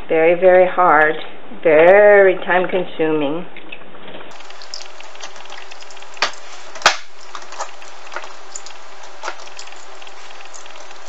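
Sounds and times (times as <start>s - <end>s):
steady hiss: 4.3s - 11.0s.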